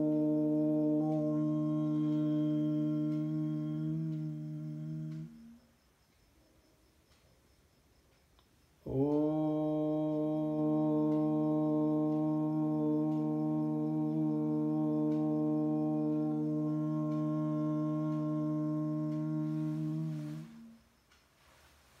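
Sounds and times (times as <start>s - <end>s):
conch shell blown: 0.0s - 5.6s, 8.9s - 20.8s.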